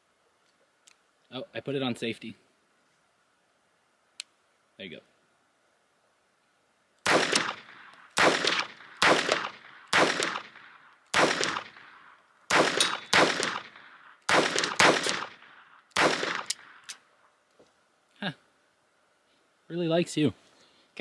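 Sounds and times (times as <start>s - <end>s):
pistol shots: 7.0s - 17.0s.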